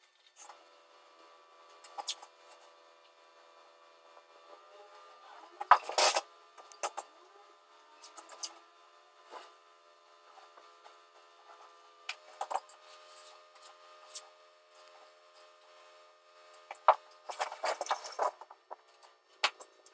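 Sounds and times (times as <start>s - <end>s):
faint steady hum: 0.0s - 19.9s
hand tools scraping and knocking: 5.6s - 6.2s, 16.7s - 19.7s.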